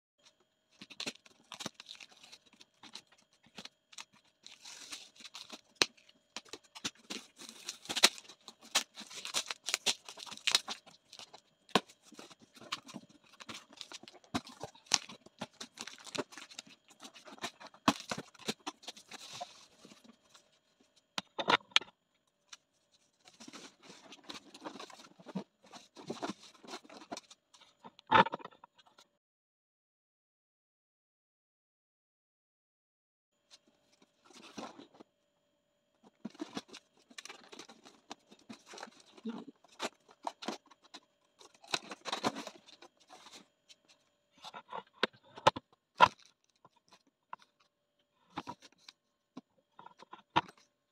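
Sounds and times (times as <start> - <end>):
cardboard flaps crinkling: 0.8 - 20.4, 23.3 - 27.3, 36.1 - 43.4
packing tape ripping: 6.9 - 10.8.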